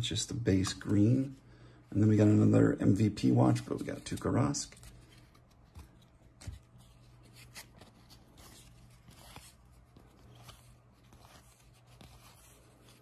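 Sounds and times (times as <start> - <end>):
trading cards rustling: 3.3 - 13.0.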